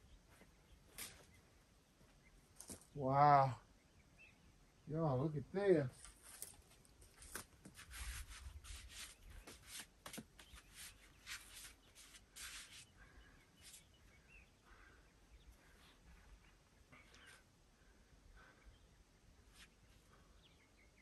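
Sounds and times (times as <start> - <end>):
rustling and scraping of antler: 2.6 - 3.0, 5.9 - 12.9.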